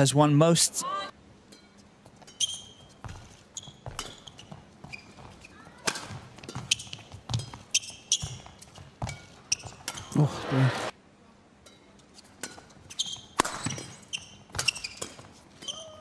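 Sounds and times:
shoes squeaking on court: 0:01.6 - 0:10.2, 0:12.1 - 0:16.0
racket striking shuttlecock: 0:05.8 - 0:08.2, 0:13.4 - 0:15.9.

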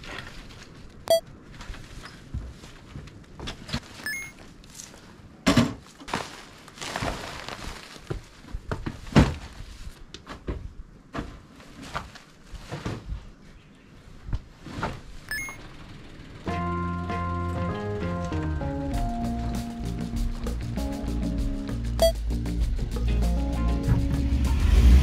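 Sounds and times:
sacks rustling: 0:05.8 - 0:13.5.

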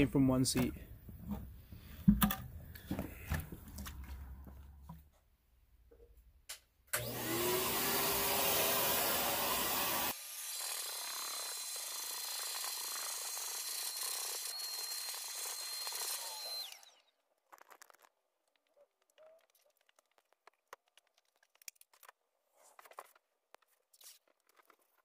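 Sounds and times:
vacuum cleaner motor whining: 0:07.0 - 0:10.2, 0:13.6 - 0:17.0.

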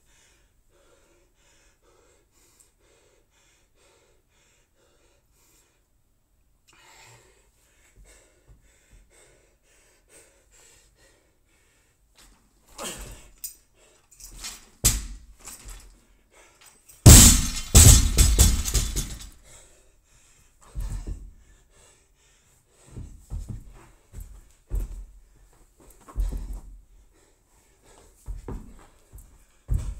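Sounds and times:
barbell dropped on gym floor: 0:17.1 - 0:19.3
soft thuds: 0:20.8 - 0:21.3, 0:26.1 - 0:26.7, 0:28.3 - 0:29.9.

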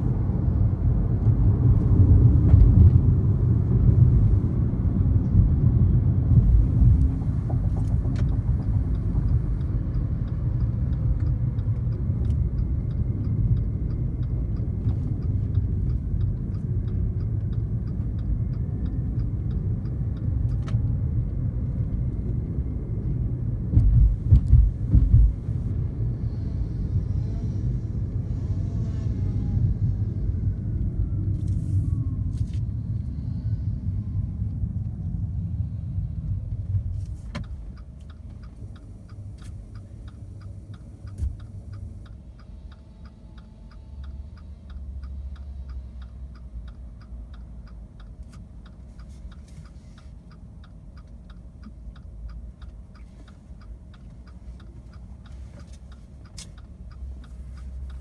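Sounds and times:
road and tyre rumble: 0:00.0 - 0:58.0
turn signal ticking: 0:00.1 - 0:28.5, 0:29.8 - 0:58.0.

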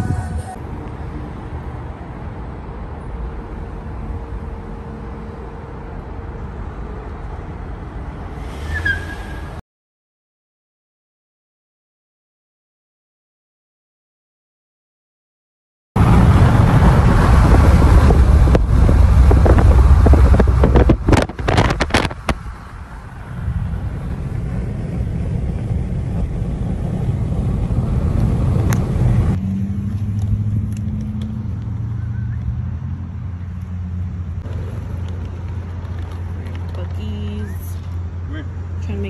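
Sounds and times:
car road noise rumble: 0:00.0 - 0:09.6, 0:16.0 - 0:39.0
wind buffeting: 0:16.0 - 0:29.4.

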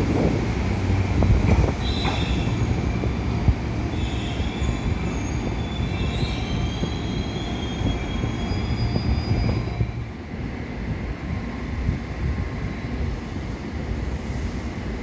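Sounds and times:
train wheels rumbling: 0:00.0 - 0:15.0
high wheel squeal: 0:01.8 - 0:09.9.

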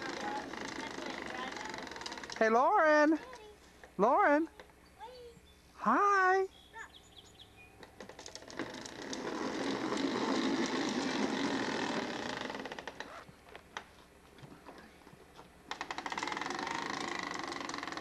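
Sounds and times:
plastic wheels rattling on concrete: 0:00.0 - 0:02.5, 0:08.0 - 0:13.2, 0:15.7 - 0:18.0.

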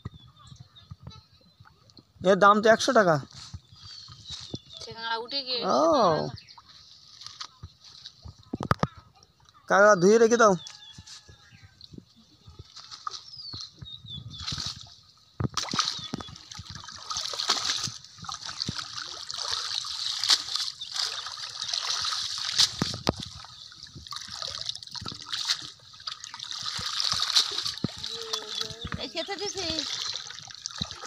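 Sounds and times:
pond water splashing: 0:12.1 - 0:31.0
water trickling off net: 0:15.6 - 0:31.0.

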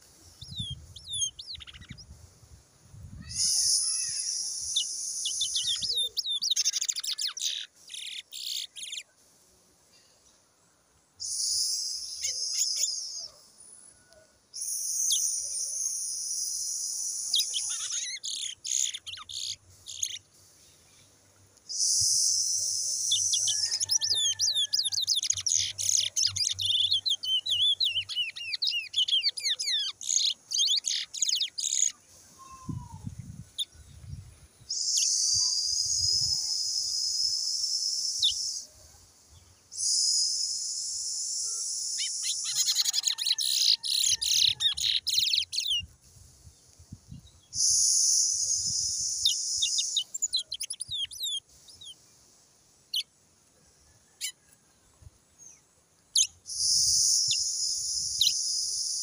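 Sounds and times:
finch singing: 0:00.4 - 0:02.1, 0:03.2 - 0:09.0, 0:17.3 - 0:20.2, 0:22.0 - 0:33.7, 0:42.0 - 0:45.9, 0:47.6 - 0:52.0.

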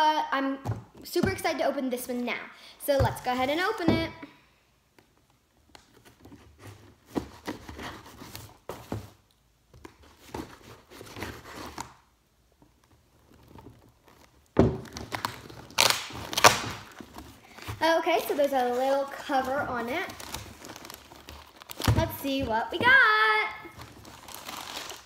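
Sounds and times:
tape and cardboard tearing: 0:13.4 - 0:22.1, 0:23.6 - 0:25.0.

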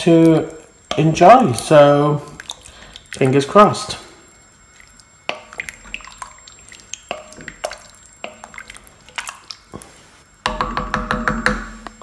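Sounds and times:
liquid sloshing and dripping: 0:00.0 - 0:09.9
spoon knocking against pot: 0:10.4 - 0:11.9.

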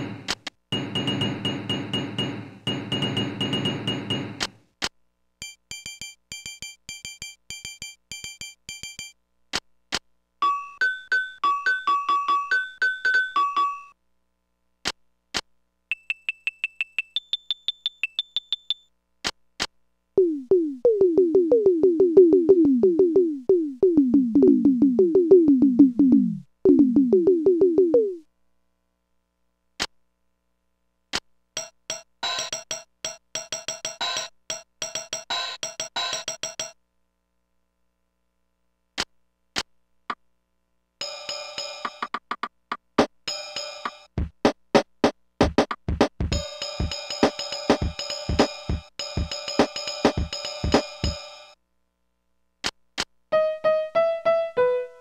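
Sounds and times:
mini keyboard high beeps: 0:05.4 - 0:09.2, 0:20.2 - 0:28.2
fast low falling keyboard notes: 0:20.2 - 0:28.2
keyboard chordal pattern: 0:53.3 - 0:55.0.

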